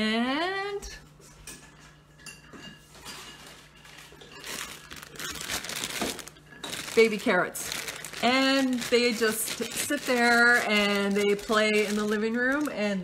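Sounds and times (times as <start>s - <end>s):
kitchenware clinking: 1.3s - 7.0s
plastic bag crinkling: 3.4s - 13.0s.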